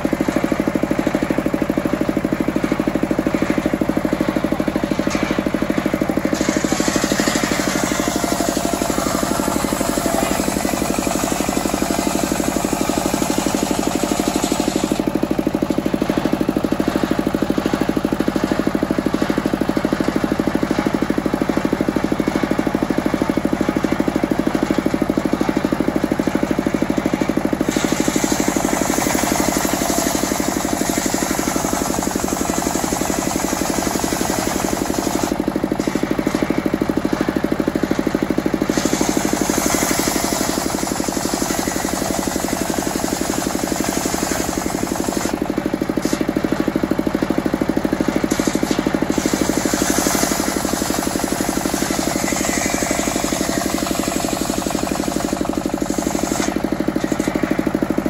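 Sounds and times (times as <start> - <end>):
diesel engine chugging: 0.0 - 58.0
circular saw blade cutting wood: 4.8 - 15.8, 27.6 - 36.6, 38.6 - 45.4, 48.1 - 57.8.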